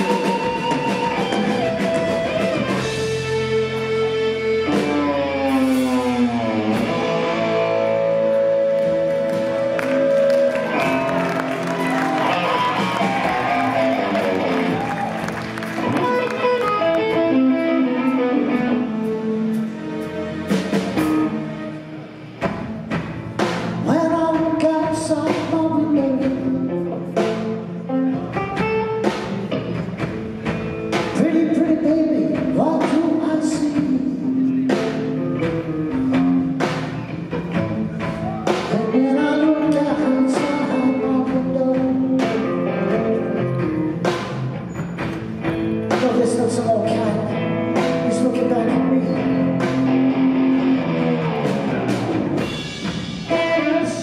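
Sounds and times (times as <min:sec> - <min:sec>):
drum kit: 0:00.0 - 0:54.0
electric bass: 0:00.0 - 0:54.0
electric guitar: 0:00.0 - 0:54.0
person singing: 0:23.8 - 0:27.4, 0:31.1 - 0:35.0, 0:38.4 - 0:43.7, 0:45.8 - 0:49.8, 0:53.2 - 0:54.0.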